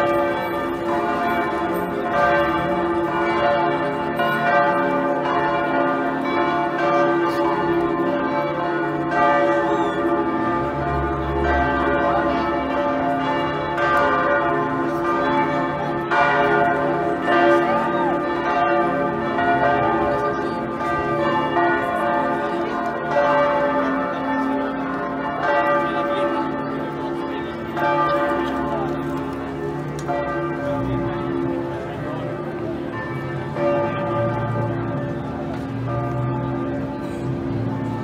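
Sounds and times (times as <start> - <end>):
church bells ringing: 0.0 - 38.0
faint crowd chatter: 19.6 - 38.0.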